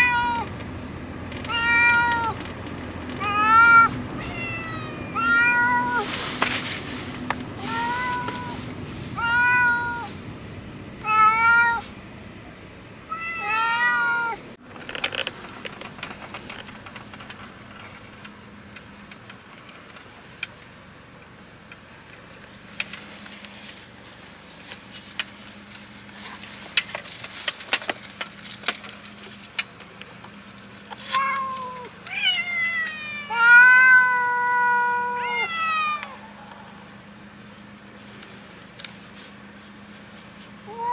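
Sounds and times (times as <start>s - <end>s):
cats meowing loudly: 0.0s - 0.5s, 1.4s - 2.4s, 3.2s - 6.2s, 7.6s - 8.6s, 9.2s - 10.2s, 11.0s - 11.9s, 13.1s - 14.4s, 31.0s - 36.6s, 40.7s - 40.9s
small clicks and rustles: 1.3s - 3.2s, 14.6s - 20.8s, 21.7s - 33.0s, 38.0s - 40.7s.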